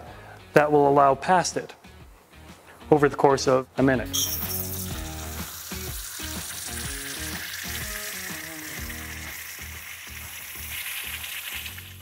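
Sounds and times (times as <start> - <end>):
background music: 0.0 - 12.0
water jet spraying into a jug: 4.2 - 12.0.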